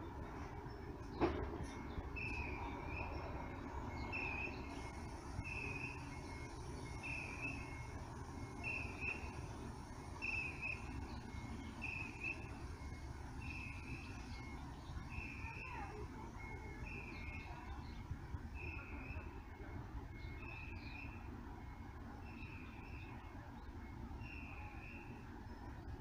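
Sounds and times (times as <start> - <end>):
bus engines rumbling: 0.0 - 26.0.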